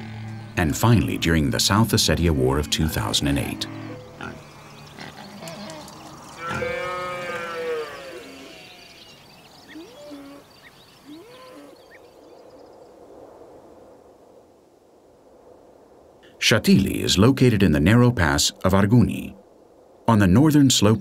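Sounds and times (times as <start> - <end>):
farm animal calls: 0.6 - 12.0.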